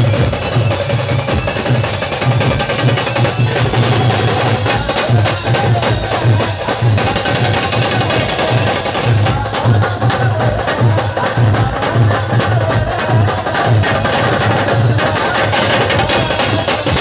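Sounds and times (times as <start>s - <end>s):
loud live band music: 0.0s - 17.0s.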